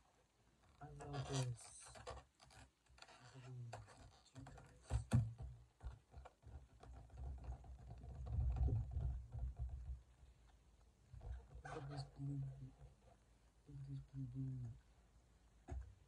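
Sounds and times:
rubbery balloon clicks and squeaks: 0.7 - 10.0.

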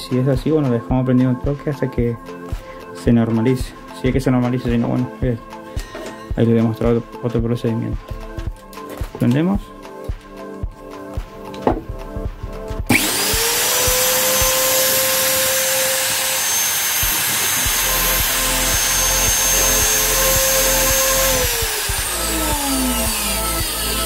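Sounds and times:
angle grinder motor whining: 12.9 - 24.0.

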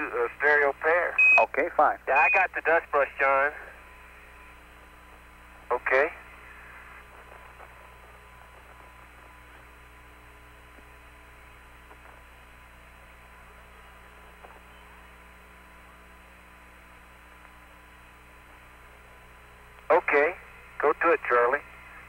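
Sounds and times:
radio hum and hiss: 0.0 - 22.0
faint radio clicks: 6.4 - 9.7, 17.4 - 17.6.

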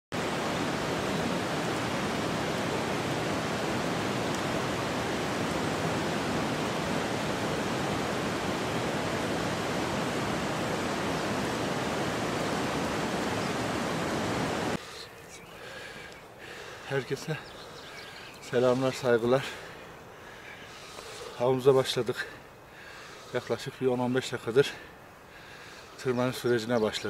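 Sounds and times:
rushing water: 0.1 - 15.0.

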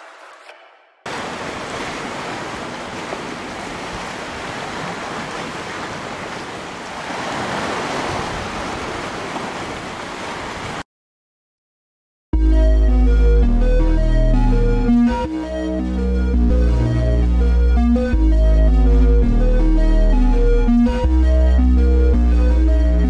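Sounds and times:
sea surf rushing: 1.1 - 10.8.

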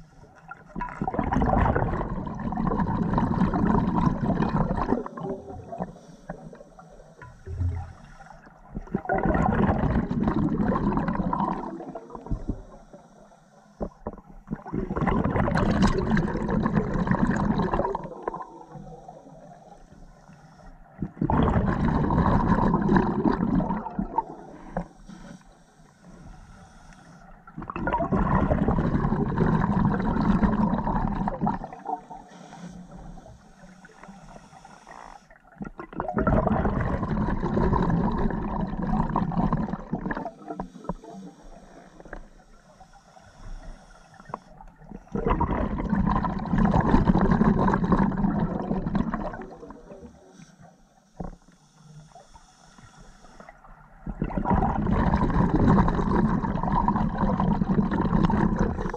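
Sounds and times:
exhaled bubbles underwater: 0.0 - 13.0, 13.8 - 19.8, 20.8 - 25.0, 27.4 - 34.3, 34.9 - 50.4, 53.4 - 58.9
regulator inhale hiss: 5.8 - 8.5, 12.4 - 14.1, 18.6 - 21.0, 24.4 - 27.5, 32.0 - 35.4, 40.4 - 44.7, 50.0 - 53.8.

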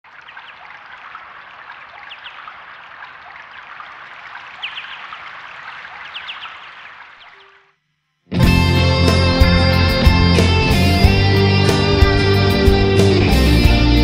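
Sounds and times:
running water rushing: 0.0 - 7.5.

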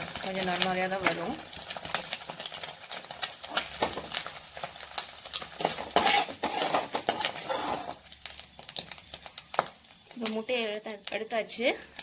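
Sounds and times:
metal spoon scraping a pan: 5.4 - 8.0.

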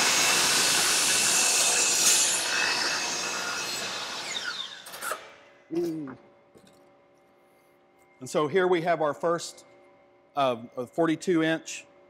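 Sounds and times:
miter saw cutting wood: 0.0 - 5.3.

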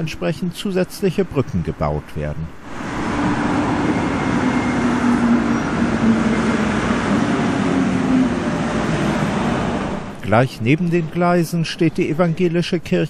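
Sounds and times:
train rumbling across bridge: 2.6 - 11.2.

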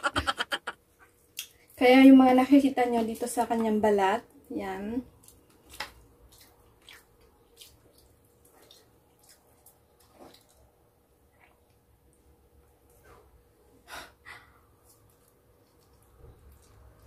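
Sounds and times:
mouth chewing: 5.2 - 10.7.

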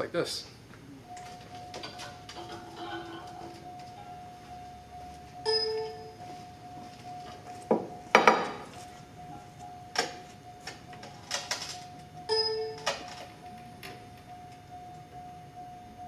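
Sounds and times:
faint steady tone: 1.0 - 16.0.

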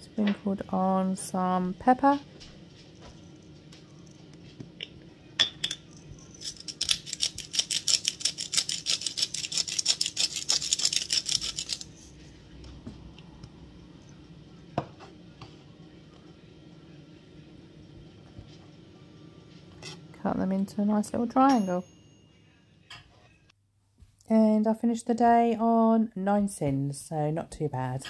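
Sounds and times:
pepper grinder clicking: 6.4 - 11.9.

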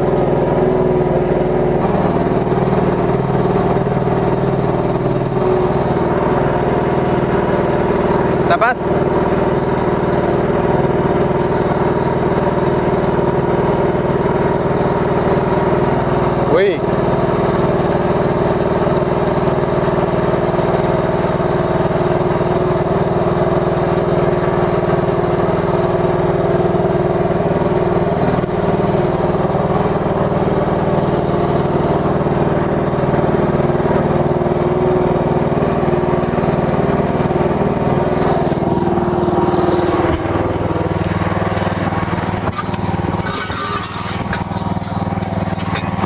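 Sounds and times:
small excavator engine running: 0.0 - 46.0.

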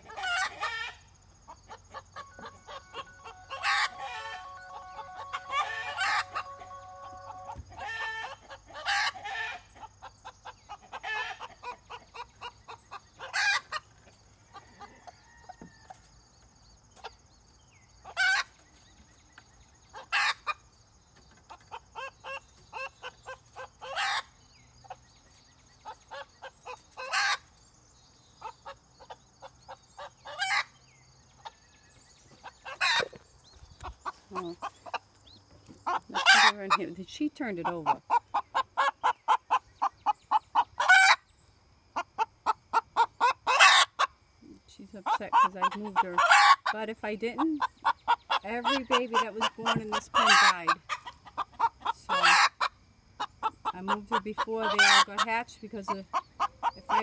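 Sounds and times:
hen clucking: 0.0 - 15.8, 18.0 - 18.6, 19.9 - 27.6, 28.4 - 30.8, 32.3 - 41.3, 41.9 - 57.0
hen squawking: 1.9 - 9.6, 35.9 - 39.6.

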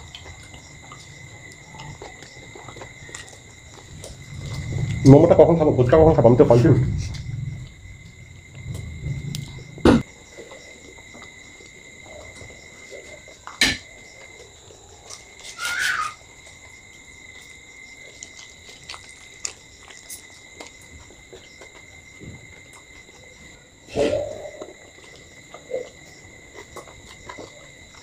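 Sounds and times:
people chewing: 0.0 - 5.6, 7.0 - 28.0
crunchy bites: 15.0 - 28.0.

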